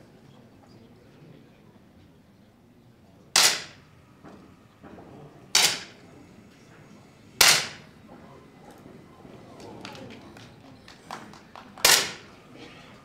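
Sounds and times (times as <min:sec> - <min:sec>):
air pistol shots: 0:03.4 - 0:03.9, 0:05.5 - 0:06.0, 0:07.4 - 0:07.9, 0:11.8 - 0:12.3.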